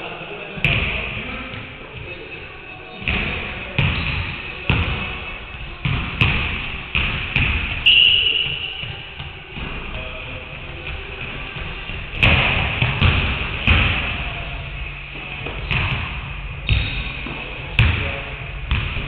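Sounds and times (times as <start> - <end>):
basketballs bouncing on wood floor: 3.0 - 5.1, 5.8 - 19.0
shoe squeak: 7.8 - 9.1, 16.6 - 17.2.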